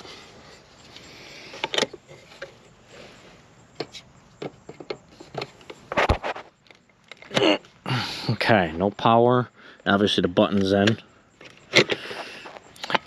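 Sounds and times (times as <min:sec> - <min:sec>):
plastic clicks and knocks: 0:03.8 - 0:05.8.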